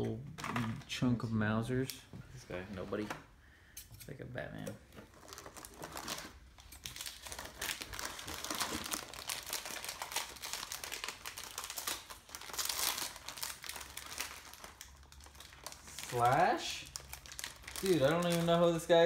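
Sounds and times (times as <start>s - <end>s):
foil packs crinkling: 5.1s - 19.0s.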